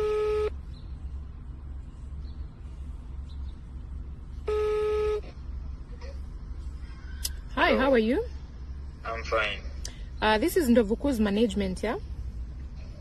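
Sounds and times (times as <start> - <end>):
phone ringback tone: 0.0 - 0.5, 4.5 - 5.2
low background hum: 0.0 - 13.0.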